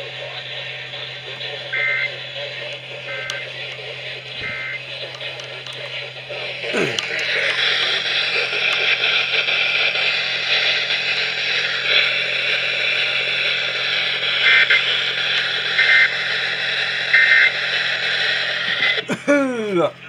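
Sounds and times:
low hum: 0:00.0 - 0:20.0
radio static hiss: 0:00.0 - 0:20.0.

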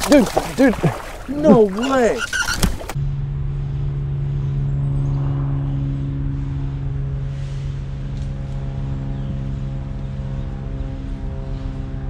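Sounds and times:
low mechanical hum: 0:02.4 - 0:12.0.

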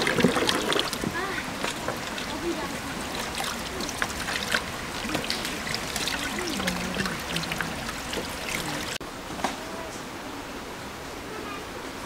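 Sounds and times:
small water splashes: 0:00.0 - 0:09.0
water running into metal sink: 0:00.0 - 0:09.0.

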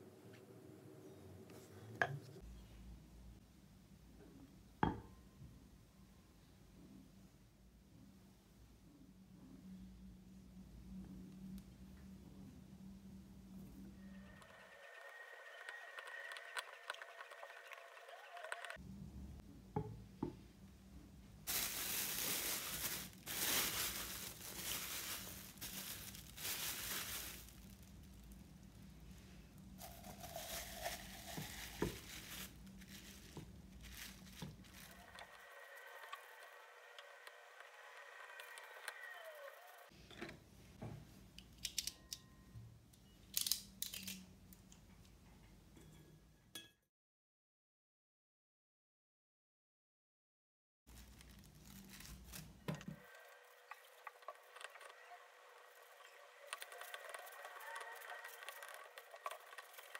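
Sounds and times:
plastic bag crinkling: 0:21.5 - 0:28.8, 0:29.7 - 0:35.4, 0:50.9 - 0:54.9, 0:55.7 - 0:59.9.

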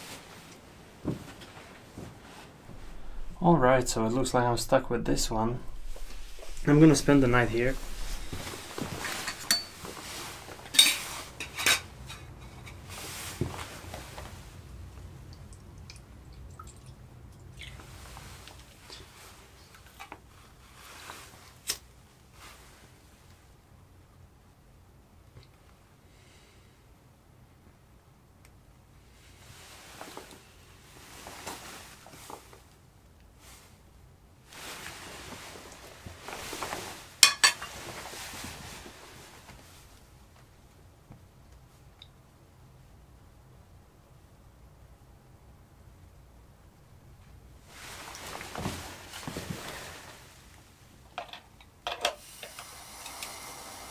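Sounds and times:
faint rustling: 0:00.0 - 0:14.6, 0:29.2 - 0:40.6, 0:47.2 - 0:50.9.

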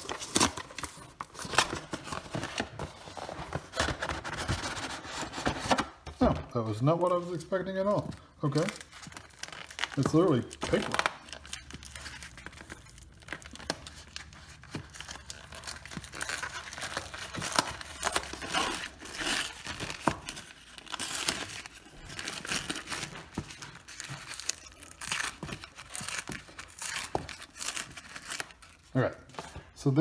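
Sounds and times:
paper lid crinkling and tearing: 0:08.5 - 0:28.9.

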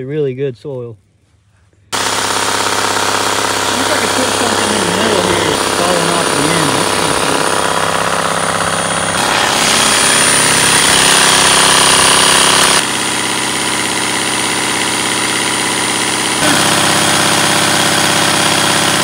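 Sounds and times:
drill driven soil screen rattling: 0:02.0 - 0:12.9.

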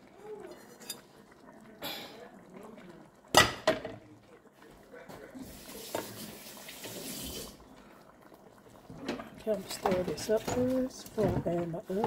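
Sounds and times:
kitchen tap running: 0:05.4 - 0:07.7, 0:08.7 - 0:12.0.

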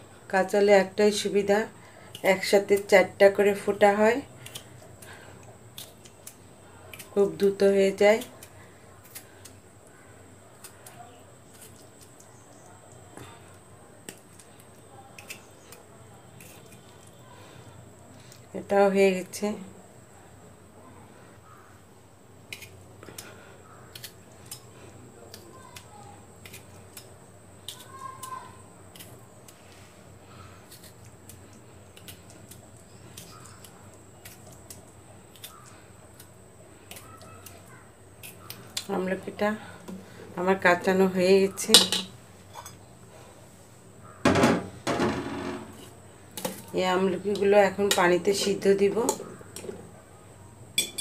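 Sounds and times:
fork pricking fruit: 0:04.2 - 0:18.4, 0:22.4 - 0:39.1.

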